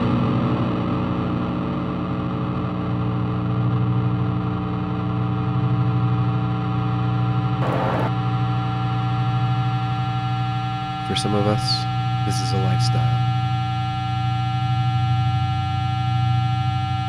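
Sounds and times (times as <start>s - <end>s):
distorted electric guitar drone: 0.0s - 17.0s.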